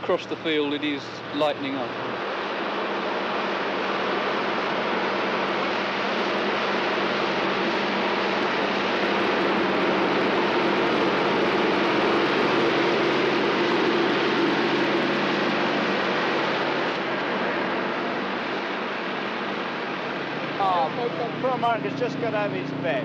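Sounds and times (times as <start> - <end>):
tractor diesel engine under load: 20.2 - 23.0.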